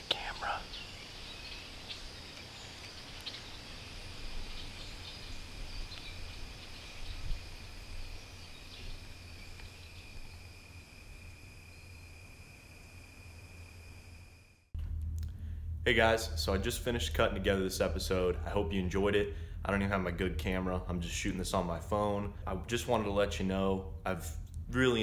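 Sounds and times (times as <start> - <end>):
insect chorus droning: 0.0 - 23.8
low rumble: 14.8 - 25.0.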